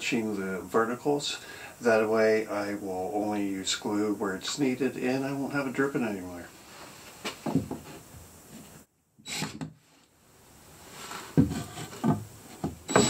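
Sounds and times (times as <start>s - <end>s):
wood knocking and scraping: 7.2s - 8.8s, 11.0s - 13.0s.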